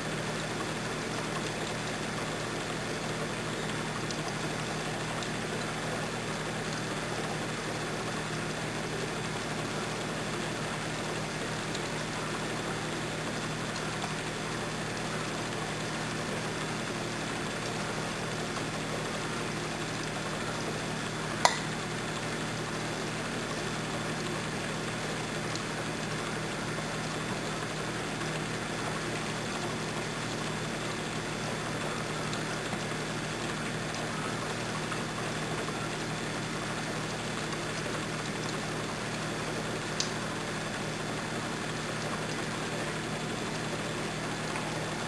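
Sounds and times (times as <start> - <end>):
sharp pop: 21.4 - 21.8.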